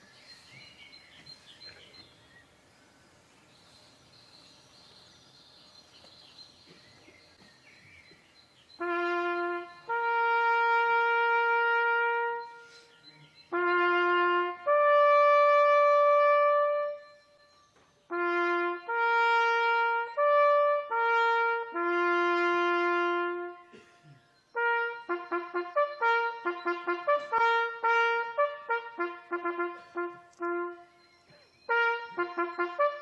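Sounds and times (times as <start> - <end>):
trumpet playing bugle call: 8.8 - 17.5, 18.1 - 23.8, 24.5 - 31.1, 31.7 - 33.0.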